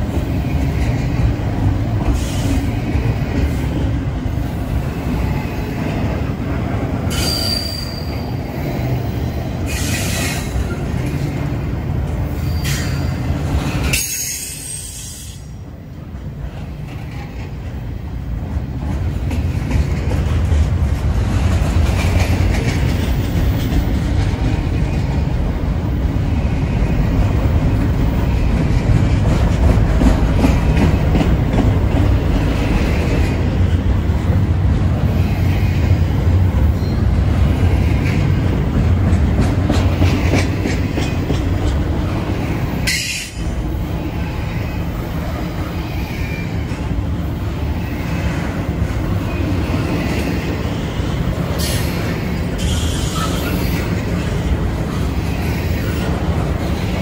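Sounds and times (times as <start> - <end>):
train cars rumbling past: 0.0 - 57.0
wheels clacking over rail joints: 16.3 - 25.6, 26.8 - 35.0, 35.7 - 44.6.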